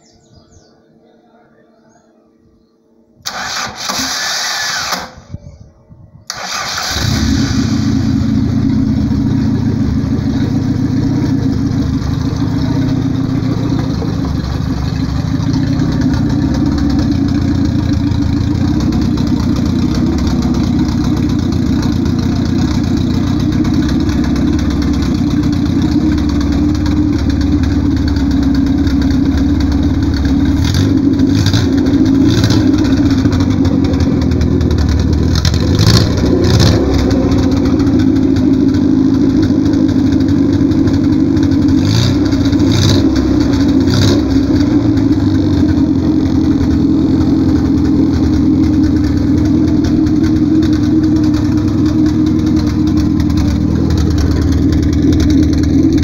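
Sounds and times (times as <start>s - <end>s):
starter motor cranking: 3.2s - 5.2s, 6.3s - 7.9s
car engine running: 6.3s - 56.0s.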